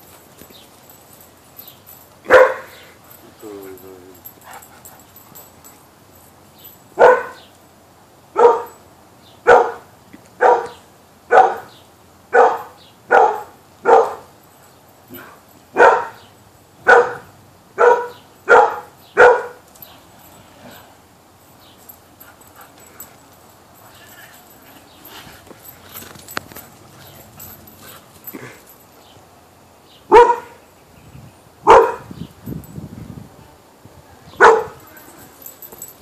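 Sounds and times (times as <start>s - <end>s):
dog barking: 2.3s - 2.9s, 7.0s - 7.4s, 8.4s - 8.8s, 9.5s - 11.7s, 12.3s - 14.3s, 15.1s - 16.2s, 16.8s - 19.6s, 30.1s - 30.6s, 31.6s - 32.1s, 34.4s - 34.8s.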